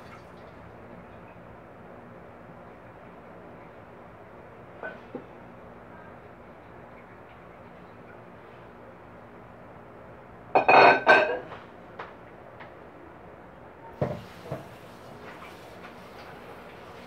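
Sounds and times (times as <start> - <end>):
kitchenware clattering on tiles: 10.6 - 11.5.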